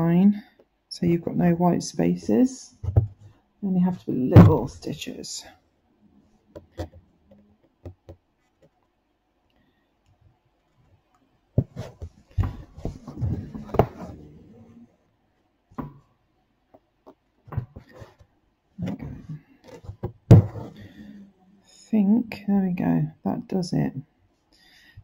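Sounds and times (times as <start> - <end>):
embroidery hoop and fabric handled: 10.6 - 14.9.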